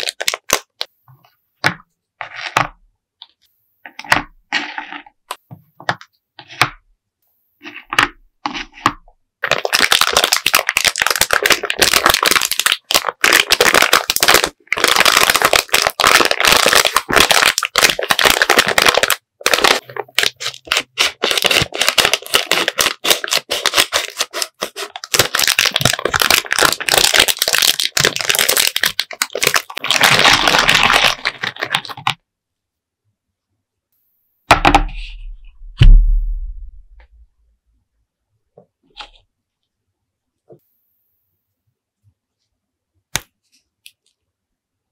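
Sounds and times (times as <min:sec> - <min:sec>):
plastic bag crinkling: 0:00.0 - 0:00.9, 0:09.4 - 0:32.1.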